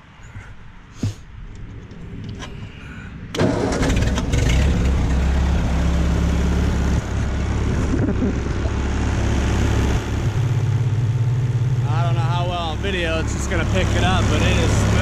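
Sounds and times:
tractor engine cranking and running: 3.3s - 15.0s.

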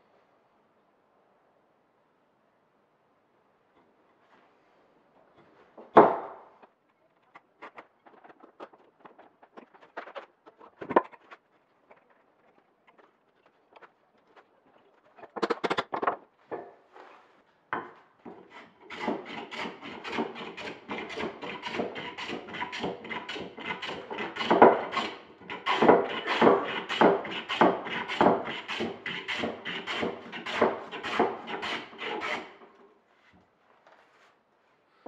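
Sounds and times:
hand tool cutting hardwood: 7.6s - 14.5s, 18.3s - 32.7s.

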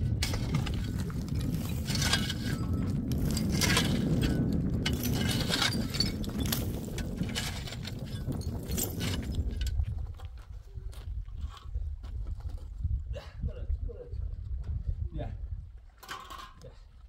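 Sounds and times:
low rumble: 0.0s - 10.8s
hard objects clinking and scraping: 0.1s - 10.2s.

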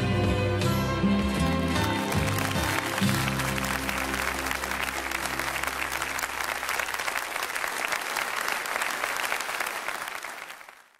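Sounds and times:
audience applauding: 1.6s - 10.9s.

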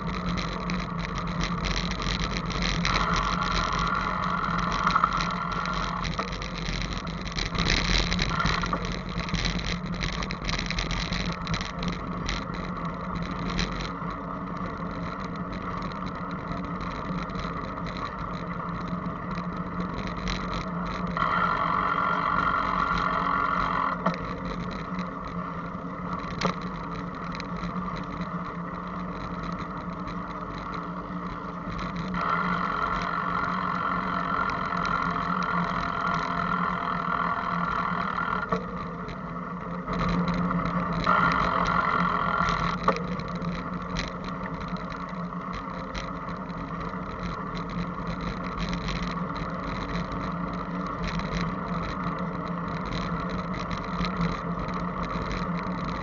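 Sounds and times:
constant low hum: 0.0s - 56.0s
wind and road noise from bicycle: 0.0s - 56.0s.

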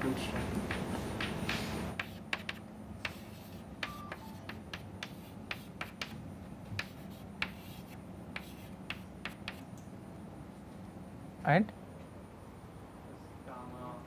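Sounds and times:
chalk tapping and scratching: 0.2s - 9.7s.

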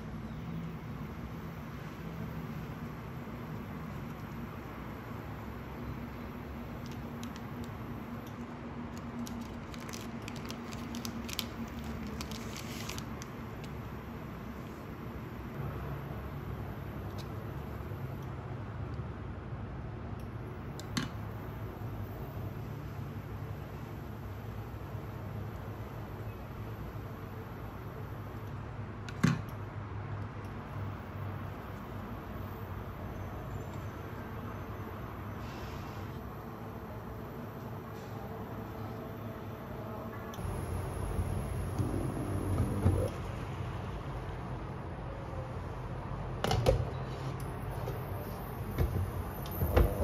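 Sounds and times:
steady low hum: 34.0s - 45.8s.

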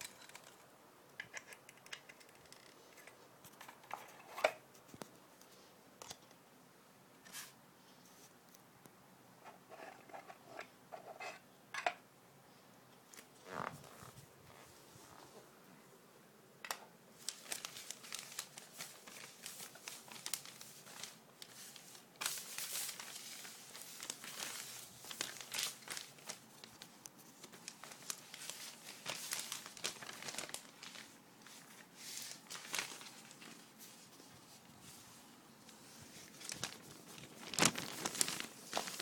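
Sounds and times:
packaging crinkling and rustling: 17.2s - 35.1s, 35.7s - 39.0s
packaging tearing: 27.6s - 31.0s, 36.4s - 39.0s.

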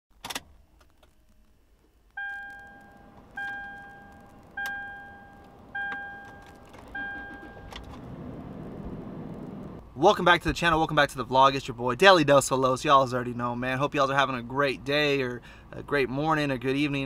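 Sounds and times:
dashboard warning chime dings: 2.2s - 8.0s.

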